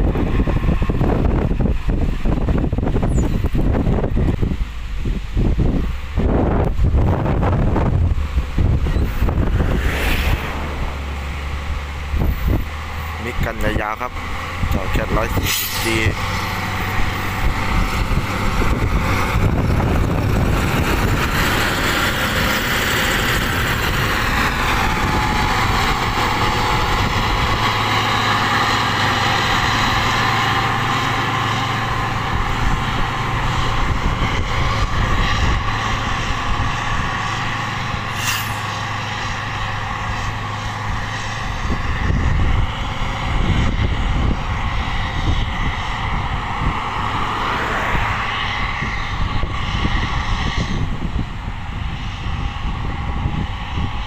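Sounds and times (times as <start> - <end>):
diesel engine running: 0.0 - 54.0
road vehicle rumble: 0.0 - 54.0
grader working crushed rock: 12.1 - 43.5.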